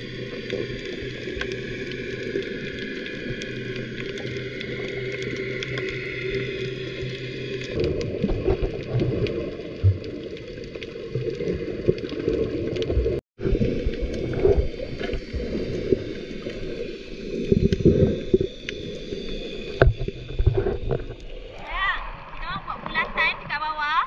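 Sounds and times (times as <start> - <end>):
muffled underwater water noise: 0.0 - 24.0
clicks and knocks underwater: 7.5 - 16.1, 17.5 - 18.8, 19.6 - 21.6.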